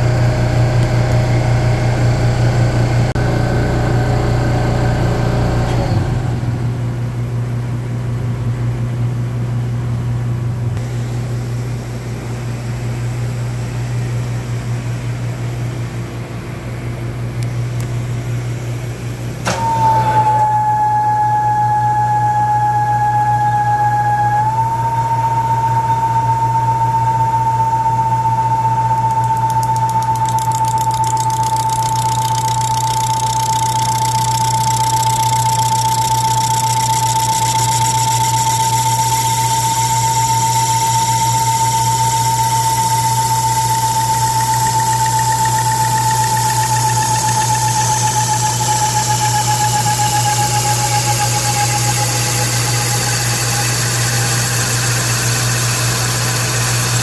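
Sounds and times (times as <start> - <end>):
click: 17.4 - 18.0, 19.4 - 19.8, 28.9 - 57.0
steady high whine: 18.8 - 57.0
lathe motor hum: 28.0 - 57.0.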